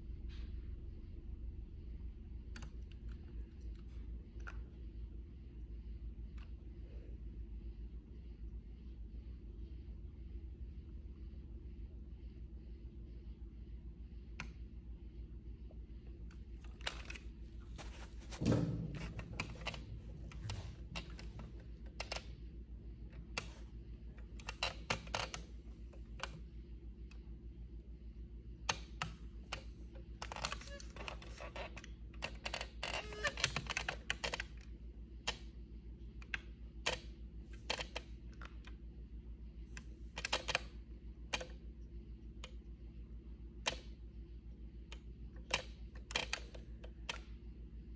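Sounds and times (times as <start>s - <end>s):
steady low hum: 0.0s - 47.9s
heavy thump: 17.6s - 21.4s.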